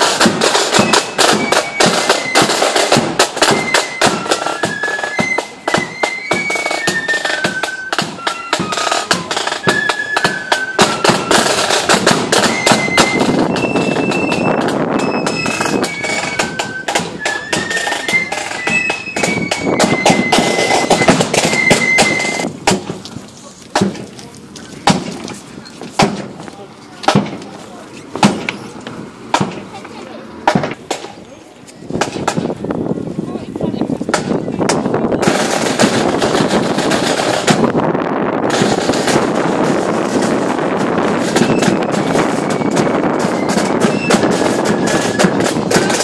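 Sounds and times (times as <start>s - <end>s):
flute melody: 0.0s - 22.6s, 40.3s - 46.0s
snare drum beats and rolls: 0.0s - 23.0s, 27.1s - 27.5s, 28.2s - 28.5s, 34.1s - 37.8s, 38.5s - 46.0s.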